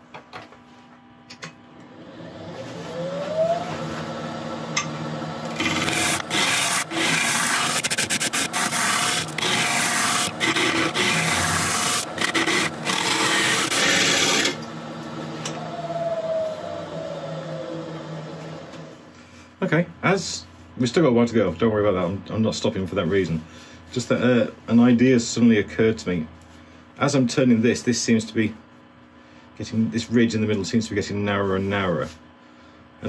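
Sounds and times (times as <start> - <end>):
wood lathe whine: 1.8 - 19.1
turning tool cutting wood: 5.4 - 14.7.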